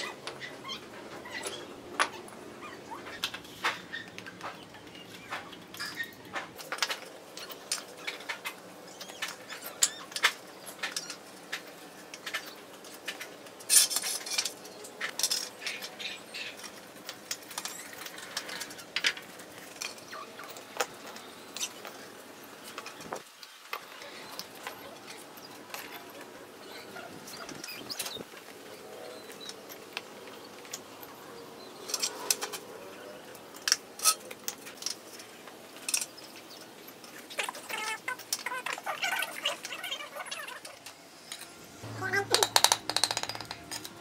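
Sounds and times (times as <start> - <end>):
bricks clinking on concrete: 42.2 - 44.0.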